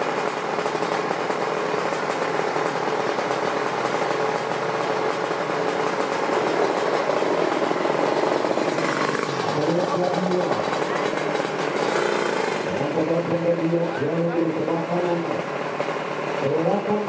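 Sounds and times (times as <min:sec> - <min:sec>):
motorcycle engine fast idle: 0:00.0 - 0:17.0.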